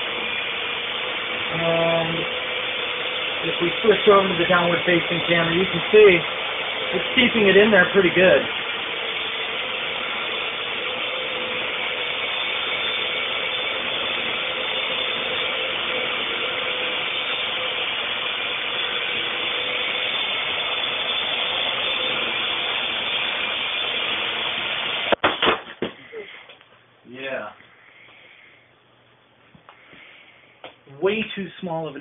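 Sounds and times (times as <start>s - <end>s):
quadcopter drone whirring buzz: 0.0s - 25.2s.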